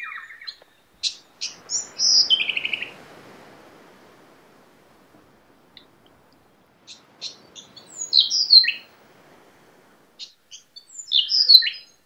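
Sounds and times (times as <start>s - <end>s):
bird singing whistled notes: 0.0s - 3.0s, 6.8s - 8.9s, 10.2s - 12.0s.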